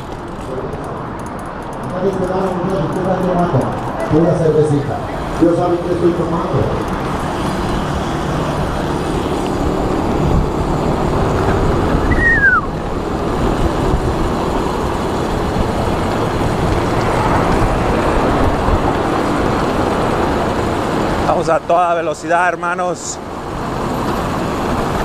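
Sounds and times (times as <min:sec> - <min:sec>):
bike tyres rolling on asphalt: 0:00.0 - 0:25.0
street traffic: 0:00.0 - 0:25.0
short falling squeal: 0:12.0 - 0:12.7.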